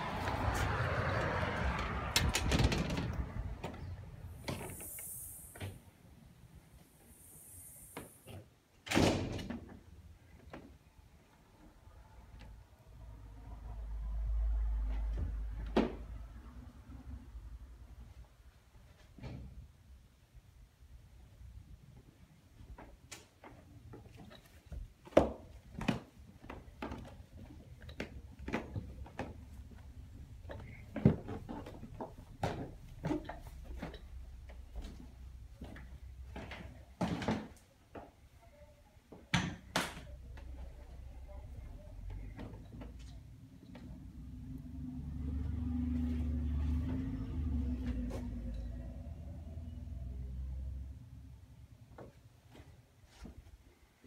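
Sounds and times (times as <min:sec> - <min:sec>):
footsteps on carpeted stairs: 0:22.6 - 0:36.8.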